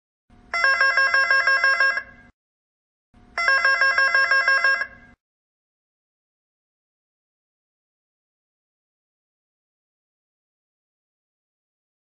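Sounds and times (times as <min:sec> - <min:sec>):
intercom warbling call tone: 0:03.4 - 0:05.0.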